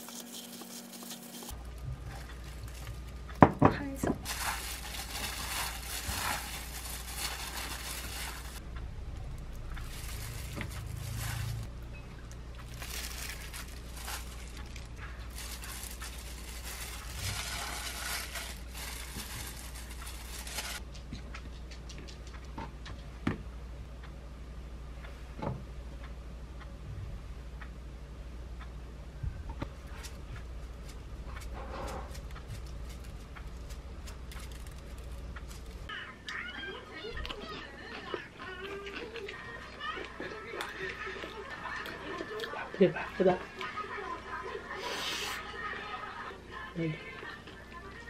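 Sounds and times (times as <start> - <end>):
plastic glove crinkle: 0.0 - 8.6, 9.7 - 11.7, 12.6 - 20.8, 31.9 - 35.9
wet squishing of noodles: 4.2 - 8.6, 12.6 - 20.8.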